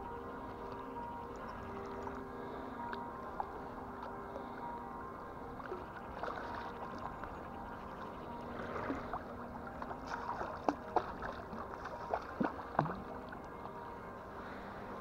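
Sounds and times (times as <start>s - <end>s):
river water lapping and splashing: 0.0s - 15.0s
small sharp plops and gurgles: 9.8s - 13.4s.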